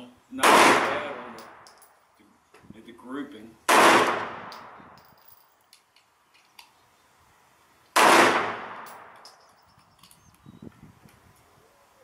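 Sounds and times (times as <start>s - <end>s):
pistol shot with echo: 0.4s - 1.8s, 3.7s - 4.8s, 8.0s - 9.2s.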